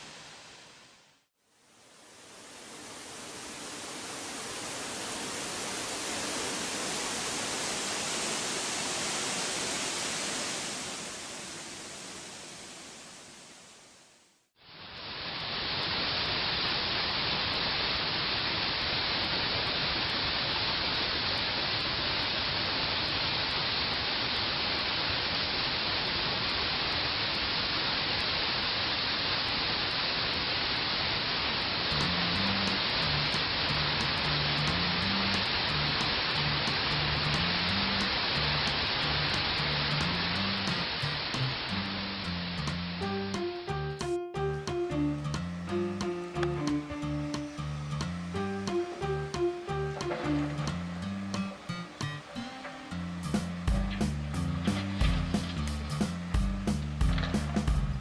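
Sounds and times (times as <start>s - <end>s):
rushing water: 1.8s - 13.9s, 14.8s - 44.1s, 44.7s - 58.0s
waterfall plunging into pool: 14.9s - 43.1s, 46.1s - 58.0s.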